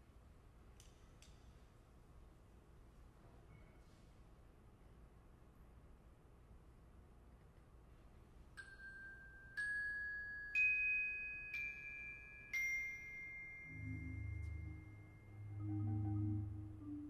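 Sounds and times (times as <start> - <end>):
bell-like mallet percussion notes: 8.6 - 17.0
low sustained notes: 13.7 - 17.0.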